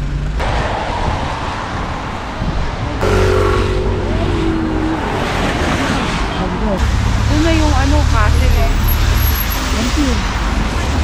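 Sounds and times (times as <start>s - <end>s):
louder vehicle passing: 0.4s - 7.9s
hiss of cars on wet street: 6.9s - 11.0s.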